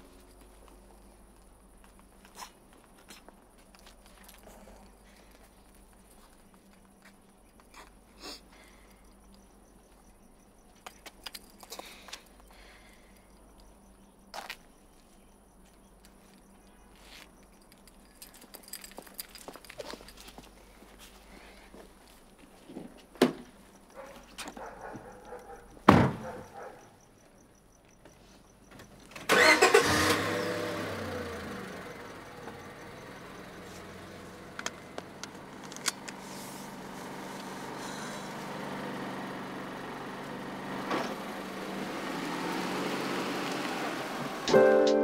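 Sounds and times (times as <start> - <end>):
car engine starting and idling: 29.0 - 45.0.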